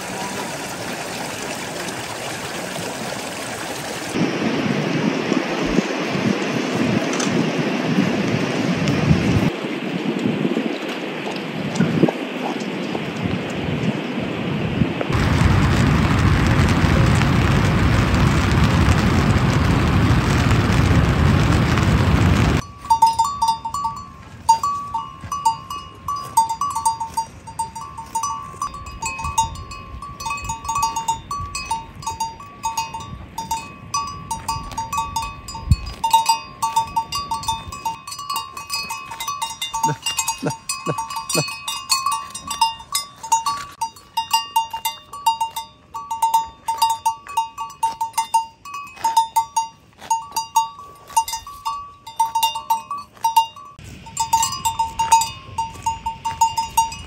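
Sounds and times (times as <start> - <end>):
cowbell clanking: 22.6 - 57.0.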